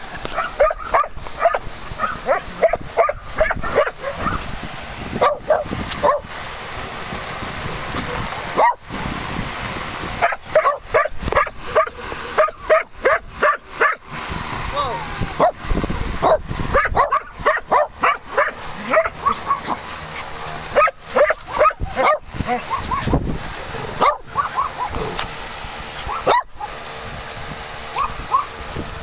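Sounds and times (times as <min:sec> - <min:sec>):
dogs barking and yipping: 0:00.2 - 0:04.5, 0:05.2 - 0:06.3, 0:08.0 - 0:08.9, 0:10.2 - 0:14.1, 0:16.2 - 0:23.2, 0:23.9 - 0:25.2, 0:26.0 - 0:26.8, 0:27.9 - 0:28.6.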